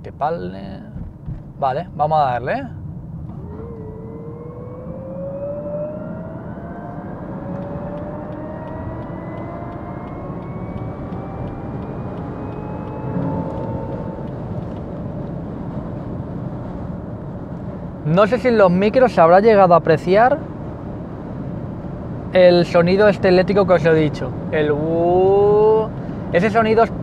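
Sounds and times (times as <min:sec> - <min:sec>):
road and tyre noise: 0:00.0 - 0:27.0
rising electric motor whine: 0:03.3 - 0:17.1.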